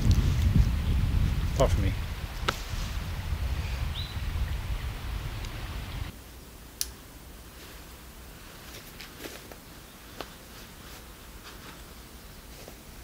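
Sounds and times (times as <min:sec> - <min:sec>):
wind buffeting microphone: 0:00.0 - 0:06.1.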